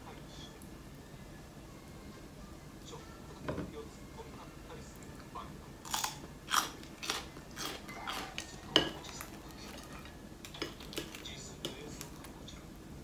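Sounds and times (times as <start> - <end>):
knock on table: 3.4 - 3.7
chewing: 5.8 - 12.4
utensils clinking on tableware: 6.0 - 11.9.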